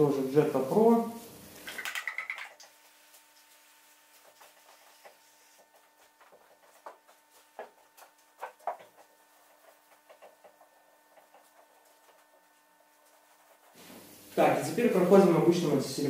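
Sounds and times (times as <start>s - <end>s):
cloth rubbing on car door: 2.9s - 14.2s.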